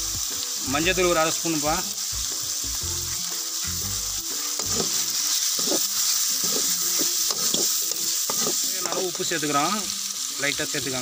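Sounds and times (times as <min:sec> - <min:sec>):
food sizzling in oil: 0:00.0 - 0:11.0
metal ladle scraping pan: 0:04.5 - 0:09.2.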